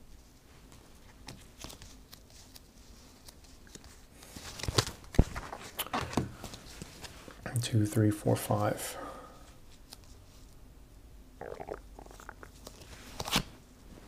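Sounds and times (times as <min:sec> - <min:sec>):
playing cards sliding and snapping: 0:01.1 - 0:07.1, 0:09.7 - 0:10.2, 0:12.6 - 0:13.6.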